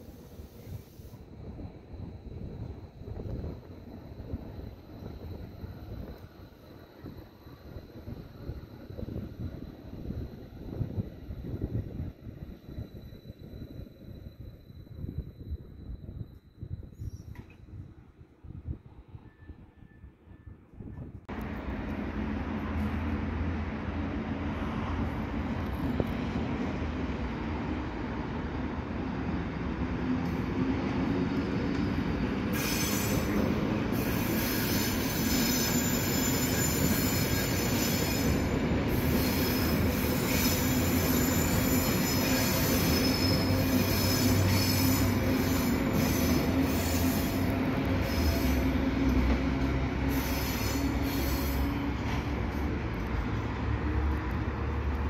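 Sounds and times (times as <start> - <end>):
electric train passing: 0.0 - 17.0, 21.3 - 55.0
train wheels squealing: 0.0 - 18.1, 19.0 - 21.1, 24.5 - 54.2.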